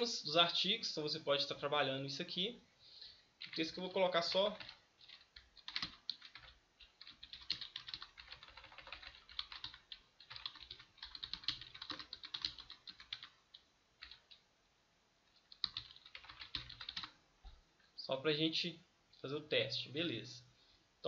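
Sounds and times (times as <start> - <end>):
typing on a computer keyboard: 3.4 - 3.6, 4.5 - 14.4, 15.4 - 17.2.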